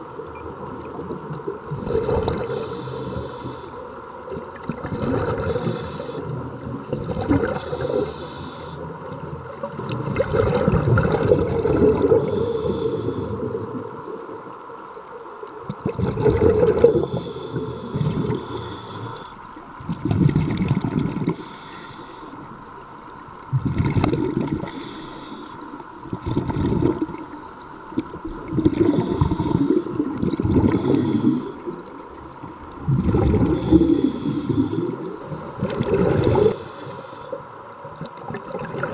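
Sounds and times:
exhaled bubbles gurgling: 0.0 - 14.2, 15.6 - 38.9
regulator inhale hiss: 2.4 - 4.0, 5.4 - 6.6, 7.5 - 9.0, 12.1 - 13.7, 16.8 - 19.6, 21.3 - 22.6, 24.6 - 25.9, 28.7 - 32.1, 33.4 - 35.2, 36.2 - 37.6.

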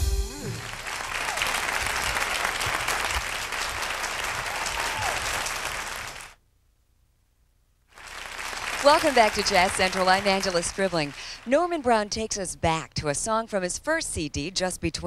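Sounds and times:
audience applauding: 0.4 - 6.4, 7.9 - 11.5.

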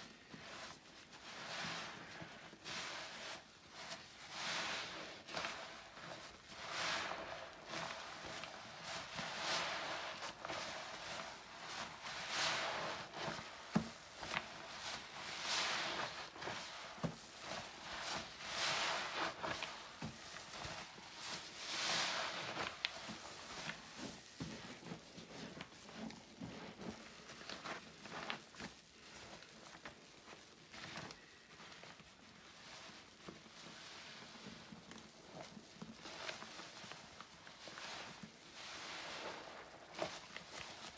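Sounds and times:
wet sponge squishing: 0.1 - 40.9.

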